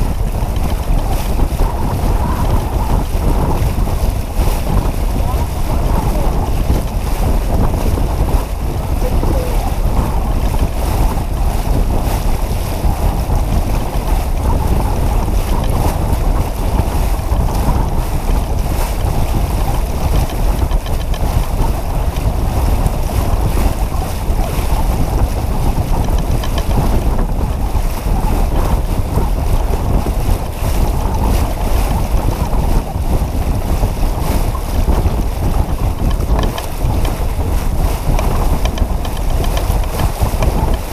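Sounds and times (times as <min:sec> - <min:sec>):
water rushing along hull: 0:00.0 - 0:40.9
wind buffeting microphone: 0:00.0 - 0:40.9.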